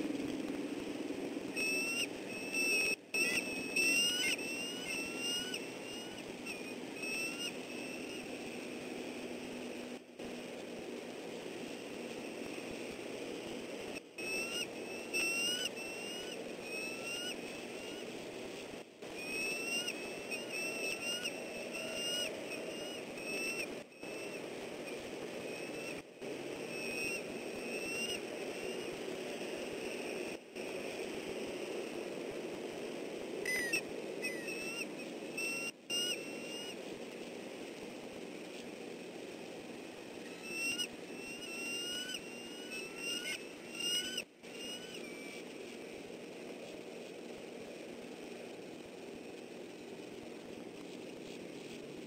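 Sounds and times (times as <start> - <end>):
eagles chirping: 1.5 - 8.8, 14.2 - 18.2, 19.1 - 29.0, 33.5 - 36.8, 40.2 - 46.0.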